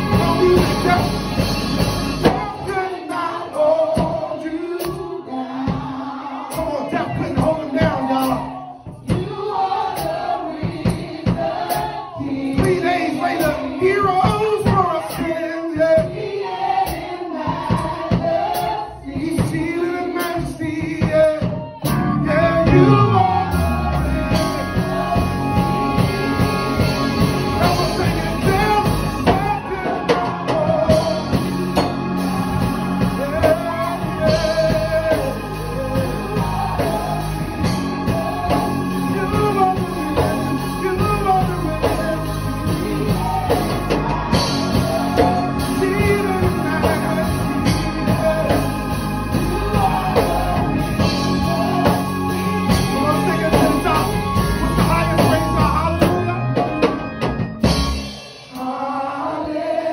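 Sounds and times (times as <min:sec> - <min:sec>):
sustained instrumental chords: 0:00.0 - 0:06.2, 0:21.9 - 0:59.9
man singing into a microphone: 0:19.1 - 0:21.6, 0:22.2 - 0:23.7, 0:27.5 - 0:31.4, 0:33.2 - 0:48.7, 0:49.3 - 0:56.7
sliding bass note: 0:22.0 - 0:29.7.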